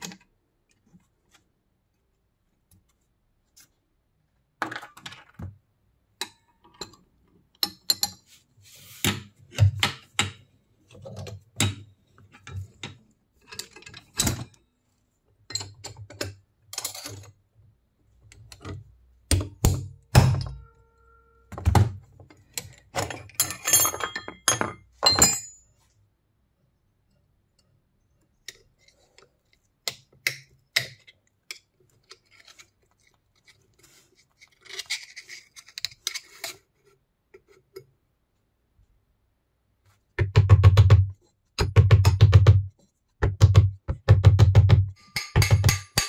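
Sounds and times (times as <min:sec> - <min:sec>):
metallic knocks and clinks: 0:23.0 - 0:25.7, 0:44.9 - 0:46.0.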